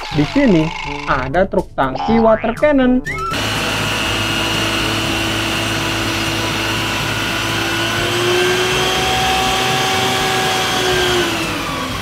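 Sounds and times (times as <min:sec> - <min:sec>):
truck engine and pump droning: 0:03.3 - 0:12.0.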